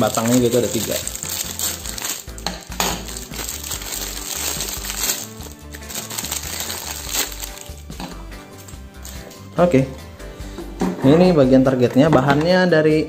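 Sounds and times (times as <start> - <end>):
plastic cards clicking together: 0.0 - 7.7
plastic packaging crinkling: 0.0 - 7.9, 8.6 - 9.2.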